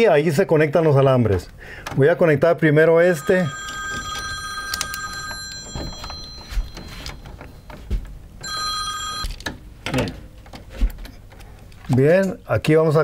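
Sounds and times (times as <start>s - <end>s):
telephone ringing: 3.0s - 9.5s.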